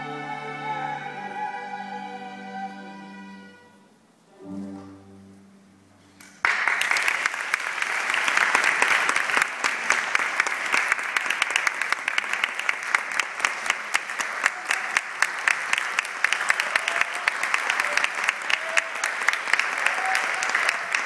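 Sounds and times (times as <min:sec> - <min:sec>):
audience applauding: 0:06.2 - 0:21.0.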